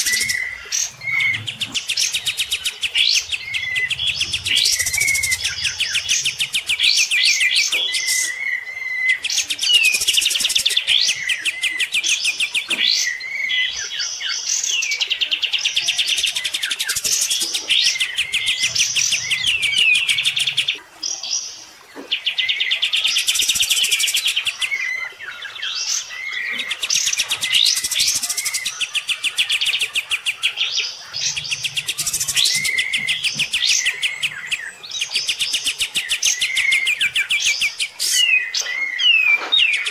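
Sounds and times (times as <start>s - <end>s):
bird chattering and whistling: 0.0s - 8.4s, 15.8s - 20.8s, 26.5s - 39.9s.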